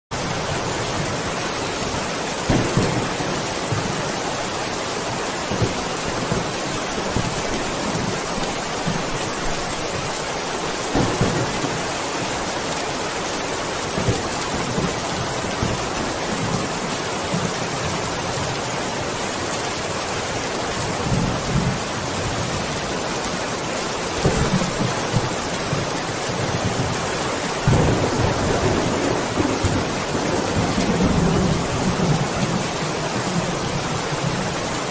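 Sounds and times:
heavy rain hiss: 0.1 - 34.9
thunder rumbling: 0.2 - 4.8, 5.4 - 12.7, 24.1 - 34.9.

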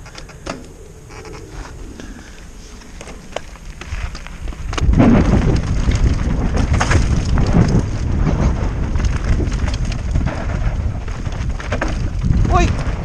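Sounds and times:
bike tyre rumble: 0.0 - 13.0
wind buffeting microphone: 0.0 - 13.0
bike rattling knocks: 4.7 - 13.0.

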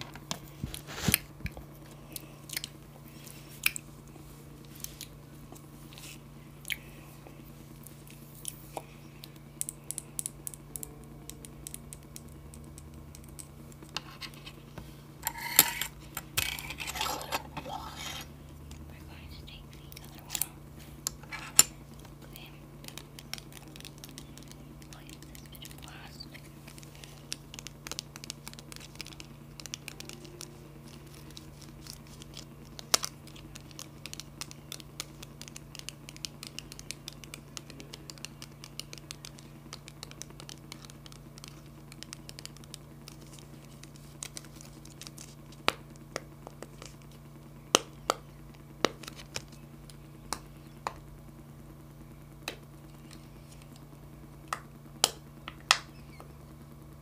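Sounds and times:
plastic packet crinkling: 19.8 - 47.3.

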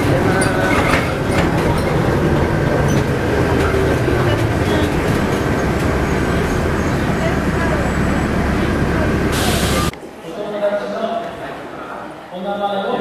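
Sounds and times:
vehicle rumble from inside cabin: 1.4 - 9.9.

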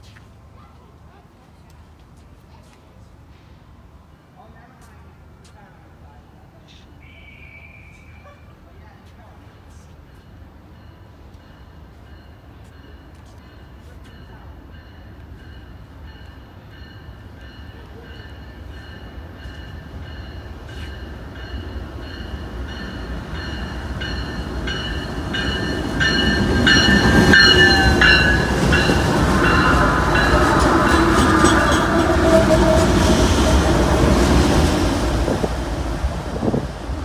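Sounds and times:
diesel locomotive engines: 0.0 - 37.0
train wheels rumbling on rails: 8.8 - 37.0
bell ringing: 21.0 - 31.4.

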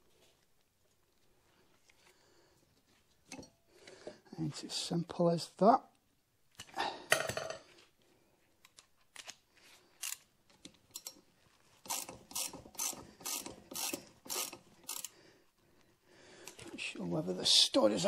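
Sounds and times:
ratchet wrench clicking: 11.8 - 15.1.

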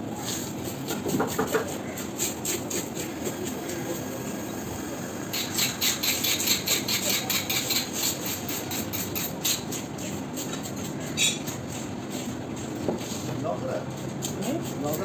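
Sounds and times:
fish scaler scraping scales: 5.3 - 9.8.

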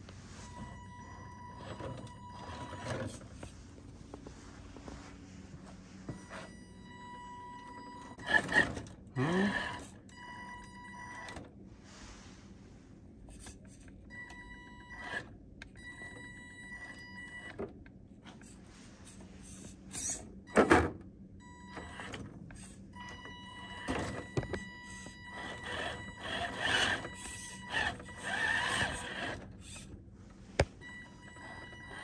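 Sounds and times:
electric motor whining: 25.3 - 29.4.

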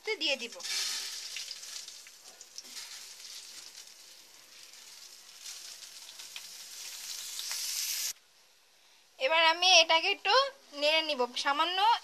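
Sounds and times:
rice sizzling in hot oil: 0.3 - 8.2.

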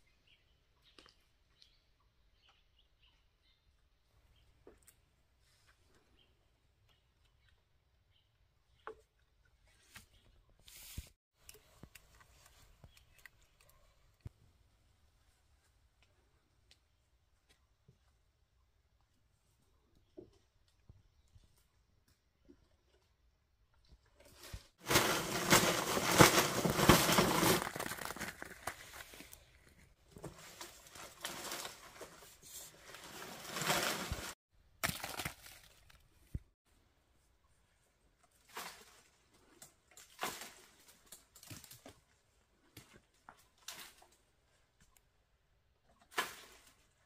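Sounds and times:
leaves and brush rustling: 24.2 - 34.4.

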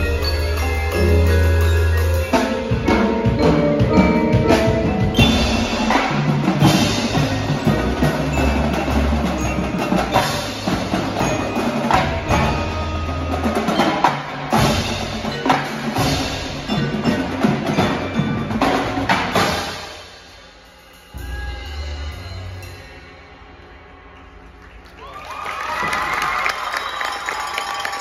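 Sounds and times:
snare tenor and bass drums: 0.0 - 19.8
drum kit: 0.0 - 23.0
marimbas and vibraphones ringing: 0.0 - 23.4.

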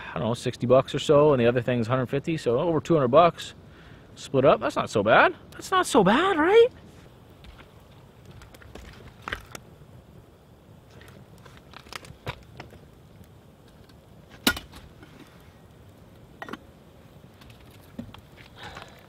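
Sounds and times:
campfire coals crackling: 0.0 - 19.0.

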